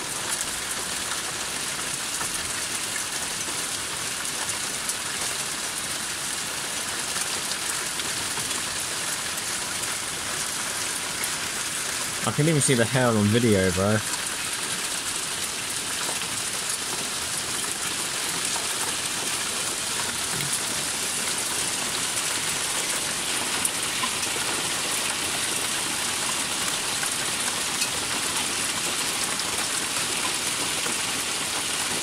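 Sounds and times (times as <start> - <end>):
hail rattling on surfaces: 6.4 - 32.0.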